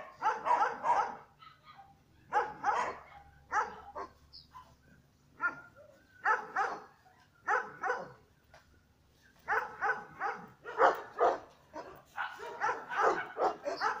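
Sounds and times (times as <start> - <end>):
dog barking: 0.0 - 4.8, 5.4 - 8.2, 9.5 - 14.0.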